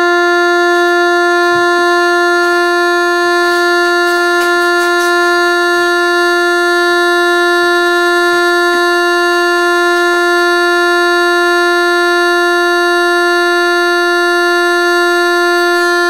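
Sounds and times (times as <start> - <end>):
buzzy test tone: 0.0 - 16.0.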